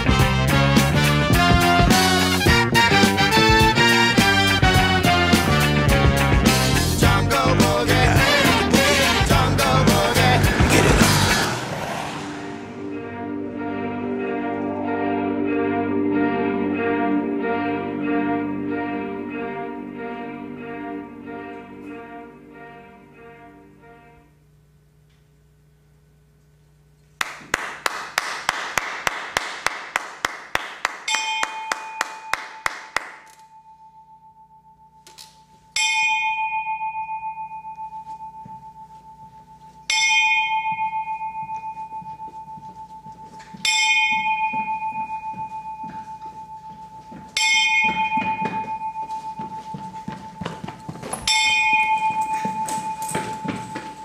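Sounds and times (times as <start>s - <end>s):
bell-like chime ringing: 31.1s - 32.7s, 33.3s - 54.0s.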